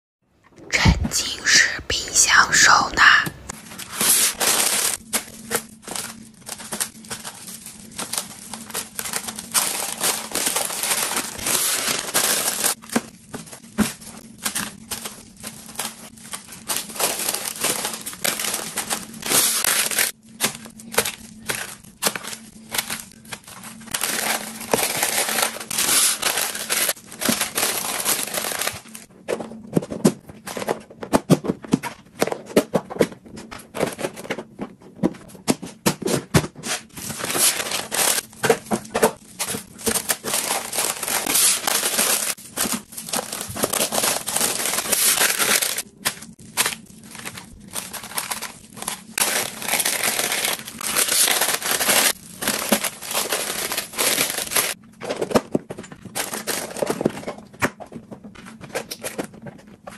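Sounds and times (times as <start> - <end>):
paper and plastic gloves crinkling: 2.3 - 29.6, 36.6 - 55.3, 56.0 - 57.4.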